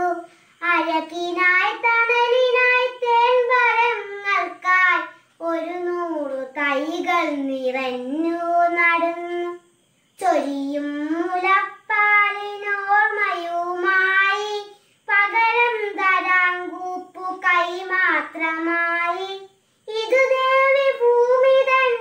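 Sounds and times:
girl singing unaccompanied: 0.0s - 22.0s.

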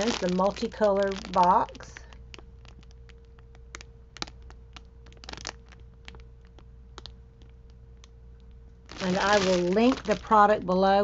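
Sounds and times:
plastic bag crinkling: 0.0s - 7.1s, 8.9s - 10.5s
faint steady hum: 0.0s - 11.0s.

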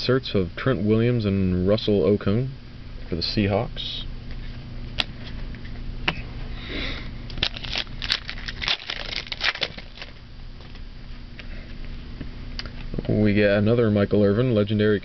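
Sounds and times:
trading cards crackling and clicking: 7.3s - 10.8s.

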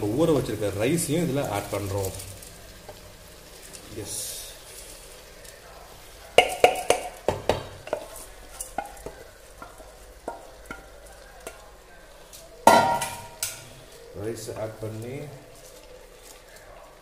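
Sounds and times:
wooden spatula knocking on pot: 6.4s - 11.6s.

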